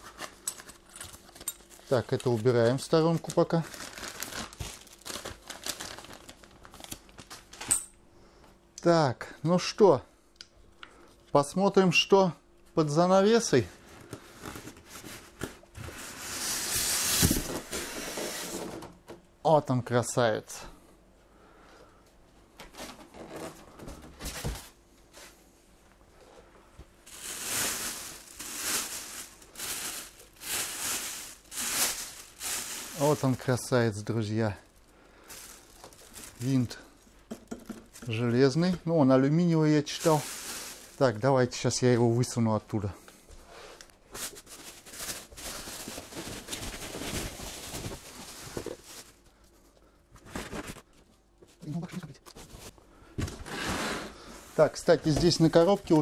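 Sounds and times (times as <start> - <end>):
plastic wrapping crinkling: 0.0 - 7.6, 27.0 - 38.8, 39.8 - 41.6, 44.1 - 49.6.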